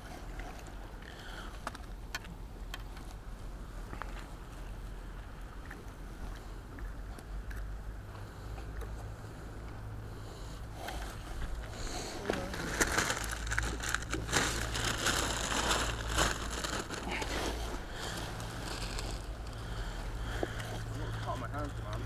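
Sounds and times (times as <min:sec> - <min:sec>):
rustling and crinkling: 0:10.8 - 0:22.0.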